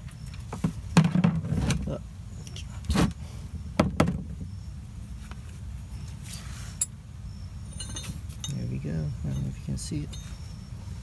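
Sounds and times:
metal parts knocking and clinking: 7.7s - 8.7s.

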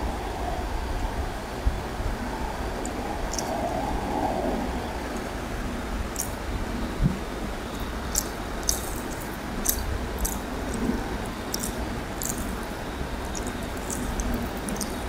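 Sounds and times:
steady background noise: 0.0s - 15.0s
wet chewing sounds: 3.3s - 3.6s, 6.1s - 6.5s, 7.6s - 15.0s
fingers mixing food on plate: 7.8s - 15.0s.

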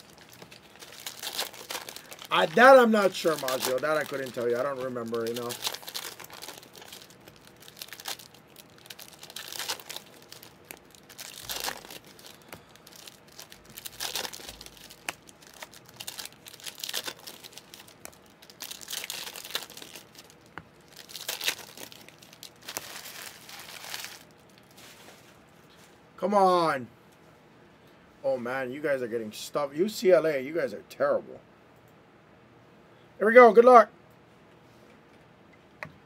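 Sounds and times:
foil wrappers crinkling: 0.0s - 25.4s.

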